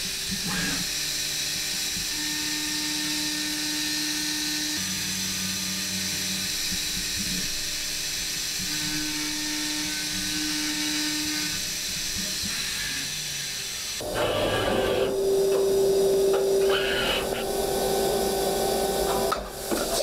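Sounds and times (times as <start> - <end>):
milling machine cutting metal: 1.8 - 20.0
low machine hum: 14.0 - 20.0.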